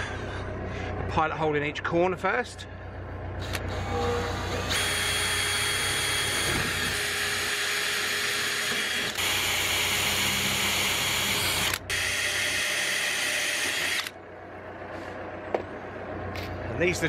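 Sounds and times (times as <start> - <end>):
cordless drill whining into metal: 3.4 - 14.2.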